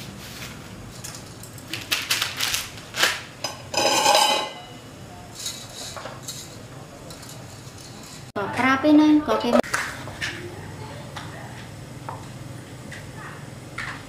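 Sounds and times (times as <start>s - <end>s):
utensils clinking on pots: 3.4s - 8.3s
ringing metallic scrape: 3.7s - 4.8s.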